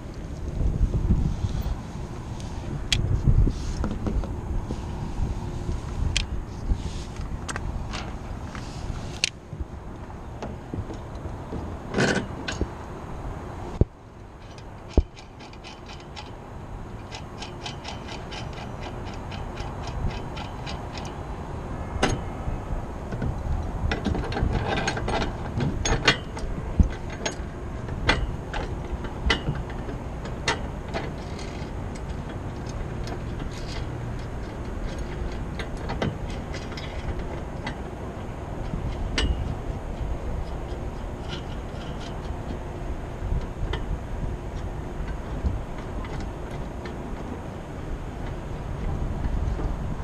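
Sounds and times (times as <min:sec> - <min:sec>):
steady low rumble: 0:00.0 - 0:50.0
ratchet wrench clicking: 0:17.0 - 0:21.2.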